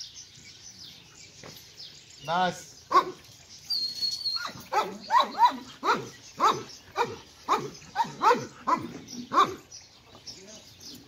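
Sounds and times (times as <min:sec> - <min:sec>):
dog yelping: 0:02.9 - 0:09.6.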